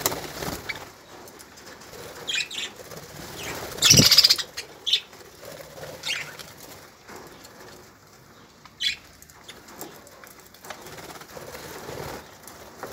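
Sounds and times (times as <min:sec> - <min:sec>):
wings fluttering: 0:00.0 - 0:12.9
budgerigars chirping: 0:03.4 - 0:05.1
sharp bird chirps: 0:03.8 - 0:04.5.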